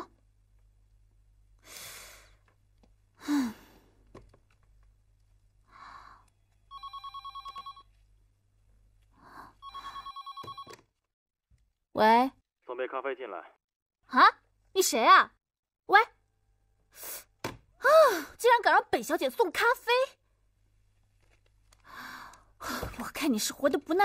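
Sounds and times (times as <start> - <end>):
woman sighing: 3.2 - 3.9
telephone ringing electronic trill: 9.6 - 10.7.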